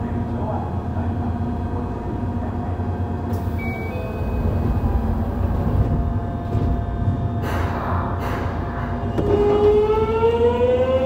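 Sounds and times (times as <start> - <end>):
low equipment and ventilation hum: 0.0 - 9.9.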